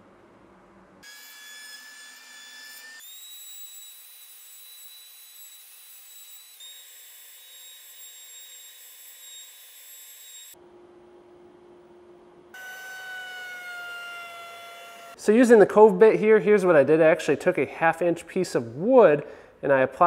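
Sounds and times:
router high-pitched whine: 2.9s - 10.6s, 12.6s - 15.2s.

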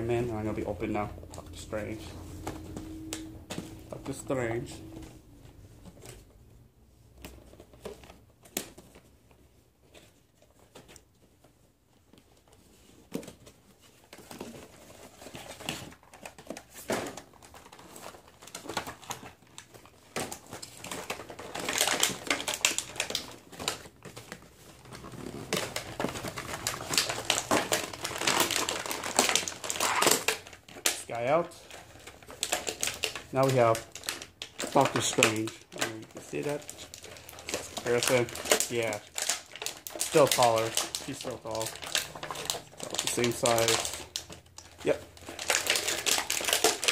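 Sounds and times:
plastic tray crinkling: 12.0s - 46.9s
cardboard box rustling: 12.5s - 30.6s.

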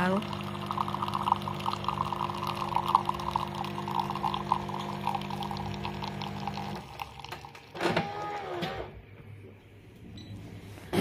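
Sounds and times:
liquid pouring: 0.0s - 7.8s
coffee machine pump humming: 0.0s - 8.8s.

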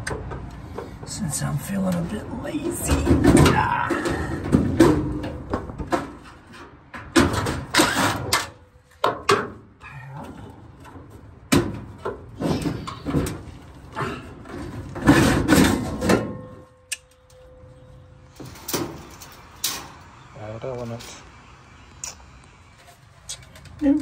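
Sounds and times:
sheet metal scraping and rattling: 10.7s - 16.8s, 18.3s - 20.0s.

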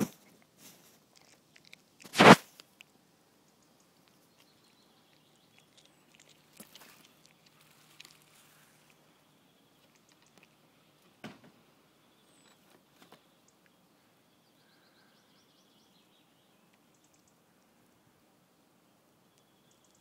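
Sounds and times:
cat crunching on prey: 0.1s - 3.0s, 3.7s - 9.0s, 9.7s - 10.6s
soft chewing clicks: 0.2s - 11.0s, 19.3s - 20.0s
faint bird chirps: 11.9s - 18.1s, 18.8s - 20.0s.

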